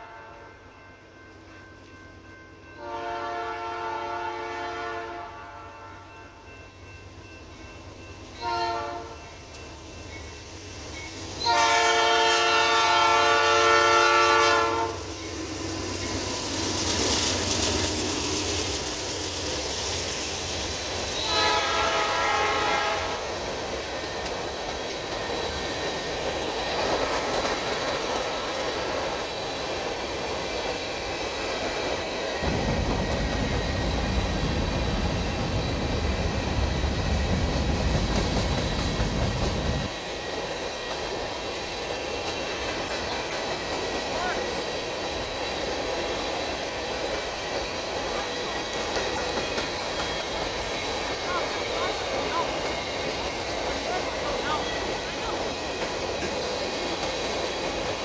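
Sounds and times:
locomotive air horn blasts: 0.0 - 0.6, 2.8 - 6.4, 8.4 - 9.3, 11.4 - 15.1, 21.2 - 23.3
train cars rumbling past: 0.0 - 58.0.

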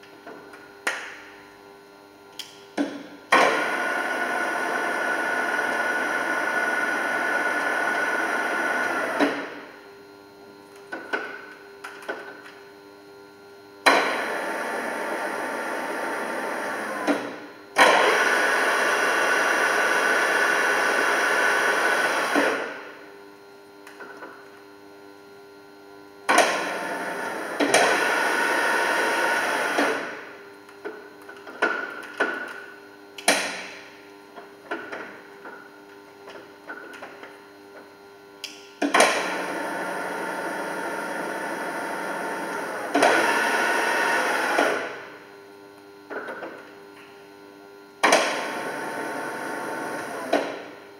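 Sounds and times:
milling machine running: 3.4 - 9.6, 13.9 - 22.8, 26.3 - 30.2, 38.9 - 45.1, 48.0 - 50.7
machine starting clunk: 17.0 - 18.4, 38.8 - 39.7, 48.0 - 50.6.

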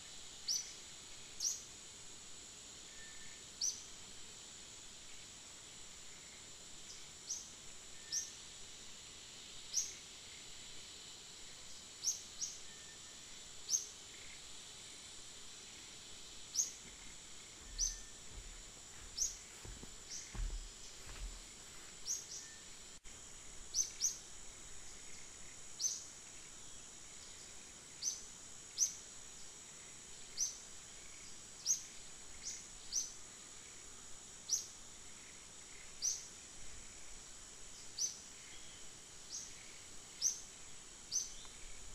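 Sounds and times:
sharp insect chirps: 0.4 - 1.7, 4.8 - 41.9
high-pitched insect drone: 9.4 - 41.9.

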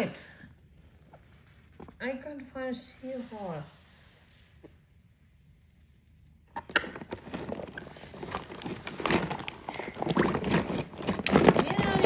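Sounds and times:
toys clicking and rustling: 6.6 - 12.0.

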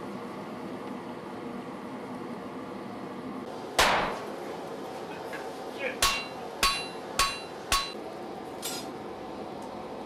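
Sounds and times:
hammer striking iron on anvil: 3.8 - 4.2, 6.0 - 8.0.

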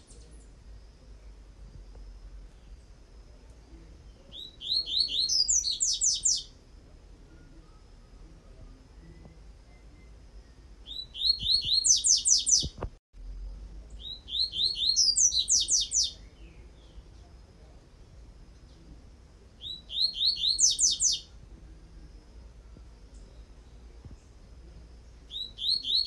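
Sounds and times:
bird singing: 3.7 - 6.6, 7.2 - 12.8, 13.8 - 17.4, 19.6 - 21.4, 22.1 - 24.4, 25.0 - 26.0.

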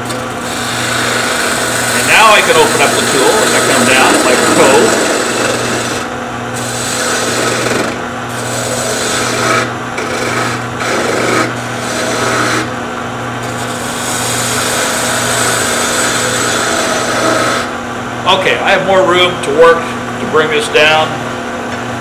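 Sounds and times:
turning tool scraping wood: 0.0 - 12.8, 13.4 - 17.8
wood lathe motor hum: 0.0 - 17.9.

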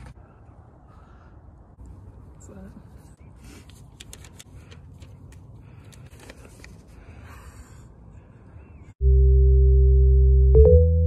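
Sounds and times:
paper crinkling: 3.6 - 7.0.

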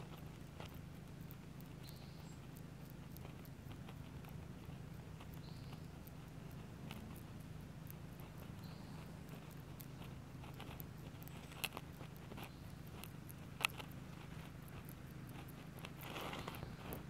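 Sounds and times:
sharp clicks: 0.0 - 17.0
dry leaves and twigs rustling: 8.0 - 17.0.

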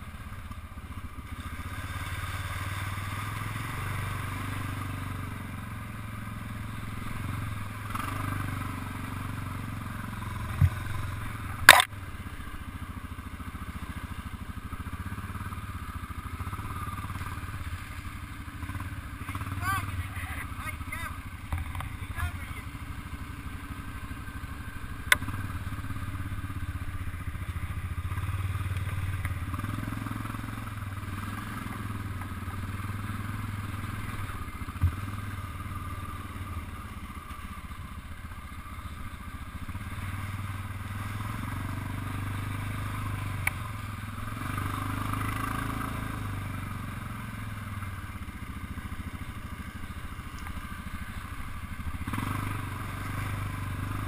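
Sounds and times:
off-road vehicle engine droning: 0.0 - 54.0
sharp click: 11.6 - 11.9.

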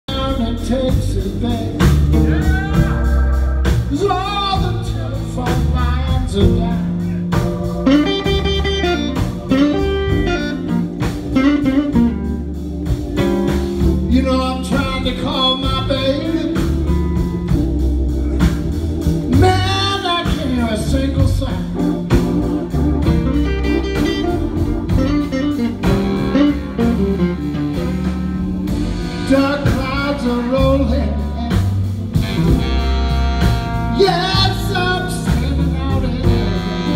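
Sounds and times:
man singing: 0.0 - 10.5, 14.0 - 17.3, 19.3 - 22.1, 29.0 - 31.9, 33.9 - 36.9
organ: 0.1 - 36.9
electric guitar: 0.4 - 36.9.

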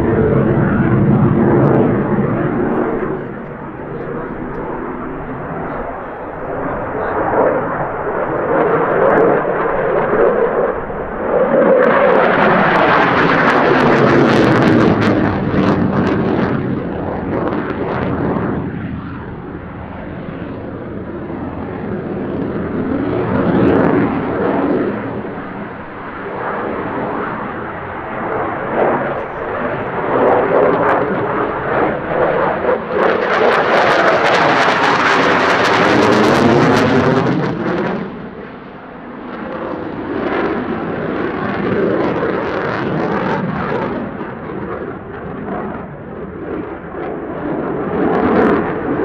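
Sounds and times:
fighter jet flying overhead: 0.0 - 49.0.

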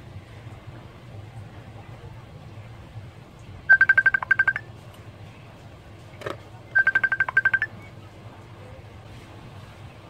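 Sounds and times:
short high electronic beeps: 3.7 - 4.6, 6.8 - 7.7.

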